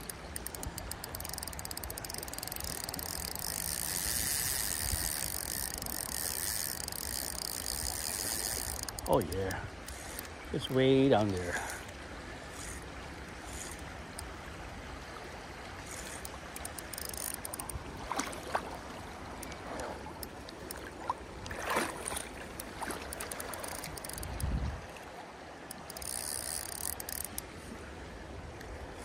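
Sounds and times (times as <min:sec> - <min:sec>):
fishing reel ratcheting clicks: 0:00.0 - 0:10.8, 0:12.5 - 0:14.3, 0:15.9 - 0:17.8, 0:22.1 - 0:24.6, 0:25.7 - 0:27.4
river water running and lapping: 0:00.0 - 0:29.0.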